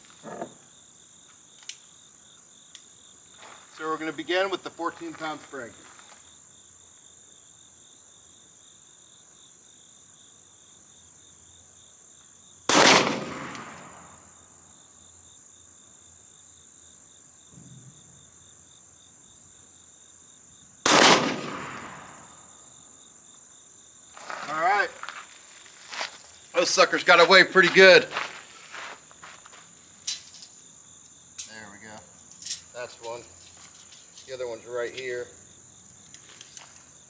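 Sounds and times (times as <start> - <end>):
high insect drone: 0.0 - 12.7, 13.4 - 37.0
pistol shots with echo: 12.7 - 14.1, 20.8 - 22.4.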